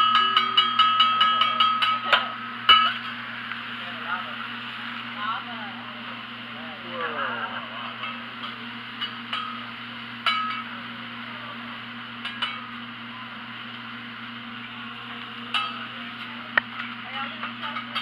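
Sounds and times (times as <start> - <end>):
metal spatulas clinking on griddle: 0.0 - 3.1, 10.2 - 10.7, 12.2 - 12.7, 15.5 - 16.3
steady hiss and hum: 0.0 - 18.0.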